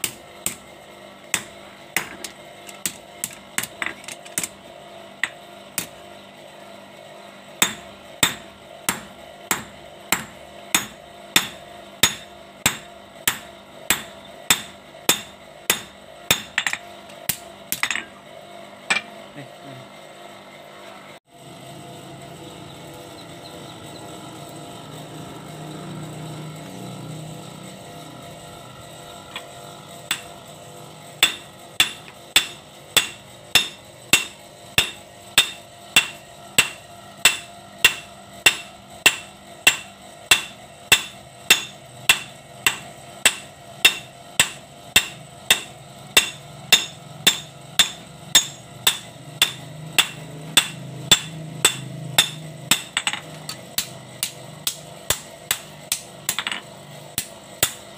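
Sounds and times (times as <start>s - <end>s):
hammer striking metal on anvil: 0.0s - 0.6s, 1.3s - 4.5s, 7.6s - 18.1s, 18.9s - 19.2s, 30.1s - 30.3s, 31.2s - 57.9s
steady low hum: 0.0s - 57.9s.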